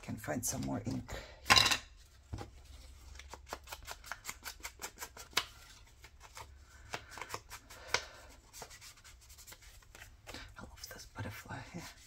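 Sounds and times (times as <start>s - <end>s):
paper clicks and scratches: 2.9s - 10.1s.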